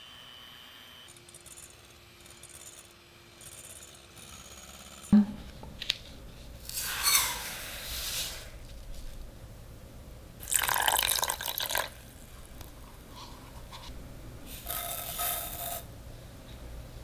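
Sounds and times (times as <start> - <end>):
water pouring into saucepan: 10.4 - 12.0.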